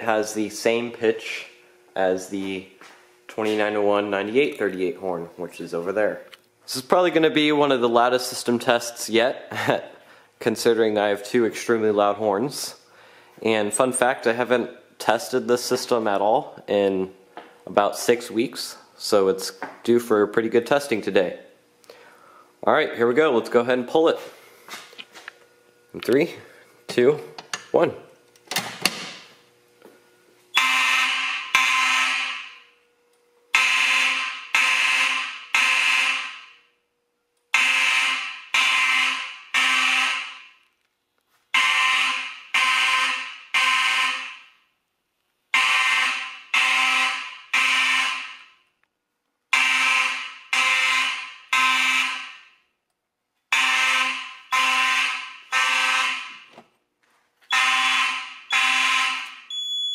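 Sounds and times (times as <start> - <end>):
fire alarm horns blasting: 3.3 - 4.6, 30.5 - 32.9, 33.5 - 36.9, 37.5 - 40.7, 41.5 - 44.7, 45.5 - 48.7, 49.5 - 52.8, 53.5 - 56.5, 57.4 - 59.9.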